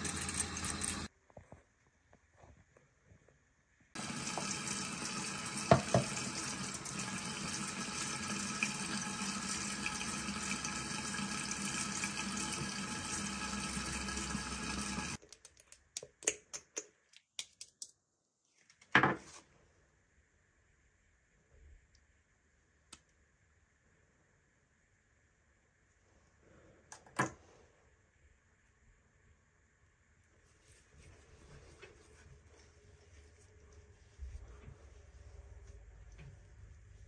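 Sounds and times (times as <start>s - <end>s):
sink tap running: 0.0s - 1.1s, 4.0s - 15.2s.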